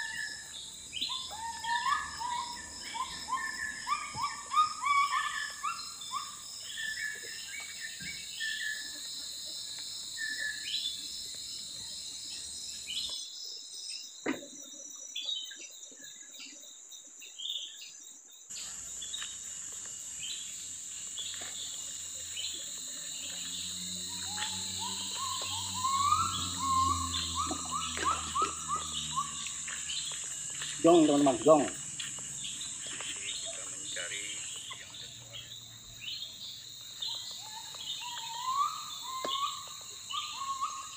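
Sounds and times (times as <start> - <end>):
bird calling rising notes: 0.0 - 7.2, 22.4 - 33.5, 37.0 - 40.9
insects trilling: 0.0 - 40.9.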